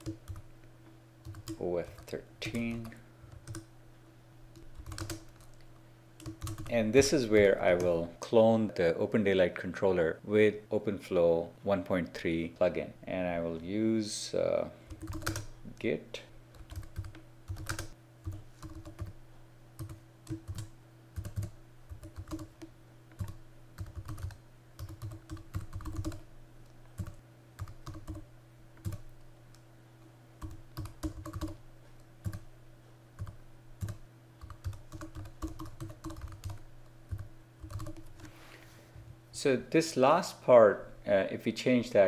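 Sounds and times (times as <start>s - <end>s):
typing on computer keyboard: 0.0s - 0.4s, 1.2s - 3.7s, 4.6s - 5.6s, 6.2s - 6.7s, 14.9s - 15.5s, 16.6s - 19.2s, 19.8s - 22.6s, 23.2s - 26.2s, 27.0s - 28.2s, 28.8s - 29.0s, 30.4s - 31.6s, 32.2s - 32.4s, 33.2s - 38.2s
steady low hum: 0.0s - 42.0s.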